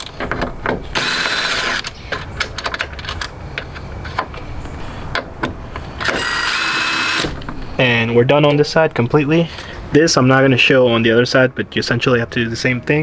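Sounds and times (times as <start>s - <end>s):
cordless drill spinning bolt: 1.0s - 1.9s, 6.0s - 7.3s.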